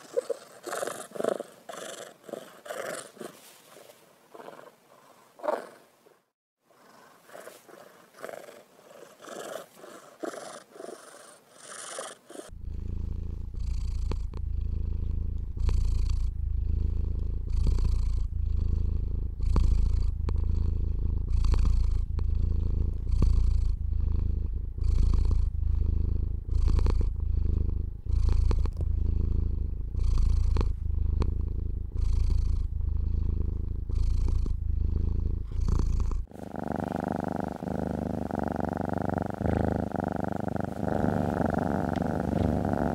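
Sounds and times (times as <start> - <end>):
cat purring: 0.0 - 42.9
steady hum: 12.5 - 42.9.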